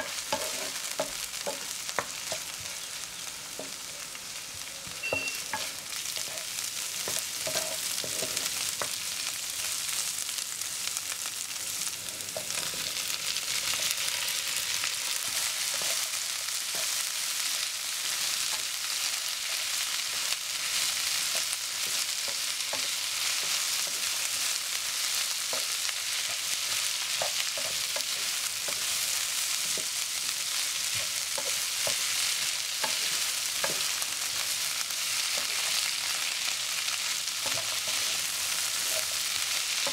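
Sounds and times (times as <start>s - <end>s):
wooden spatula scraping a pan: 0.0s - 2.9s, 5.5s - 8.6s, 37.4s - 39.9s
food sizzling in a frying pan: 0.0s - 39.9s.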